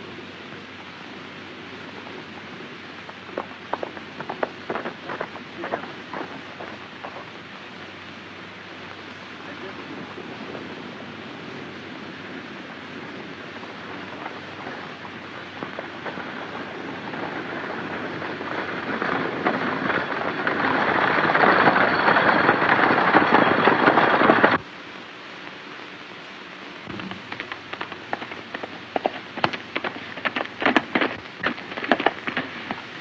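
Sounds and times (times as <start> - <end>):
galloping horse hoofbeats: 1.8 - 7.6, 12.7 - 24.6, 26.9 - 33.0.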